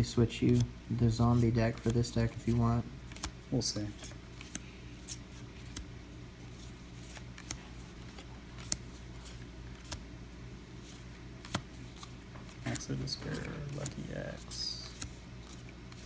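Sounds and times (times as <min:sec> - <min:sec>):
steady low hum: 0:00.0 - 0:16.0
trading cards clicking and rustling: 0:00.3 - 0:05.9, 0:06.5 - 0:10.1, 0:10.8 - 0:16.0.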